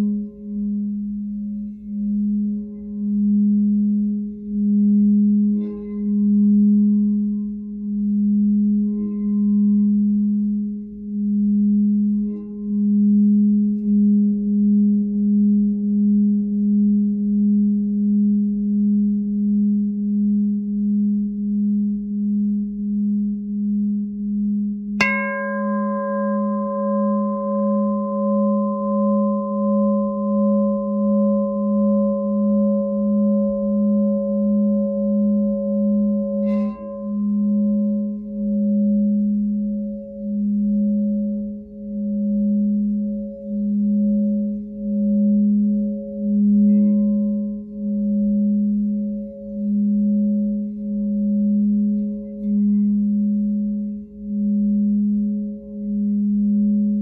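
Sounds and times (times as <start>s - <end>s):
singing bowl low drone: 0.0s - 57.0s
singing bowl struck ringing: 25.0s - 55.0s.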